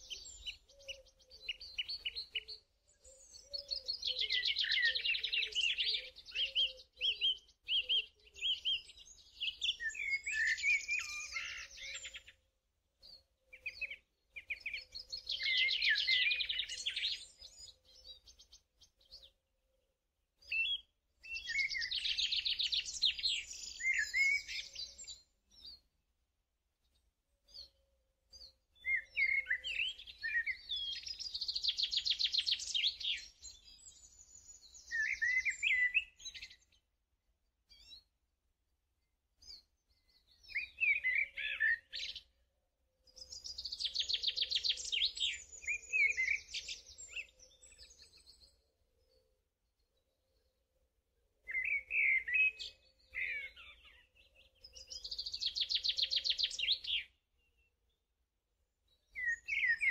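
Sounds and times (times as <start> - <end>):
small bird chirping and trilling: 43.2 - 48.7, 51.5 - 57.7.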